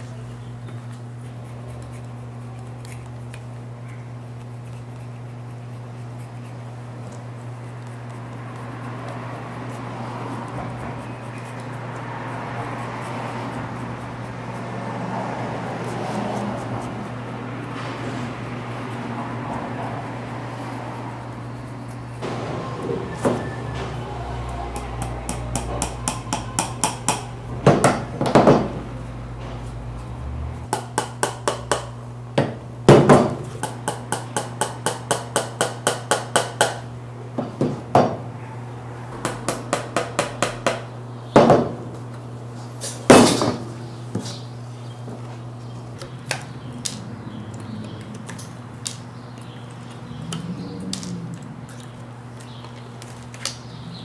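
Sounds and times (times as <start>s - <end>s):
hammer tapping tacks: 24.7s - 28.7s, 30.7s - 38.1s, 39.2s - 41.6s
heavy hammer knocks: 25.0s - 28.8s.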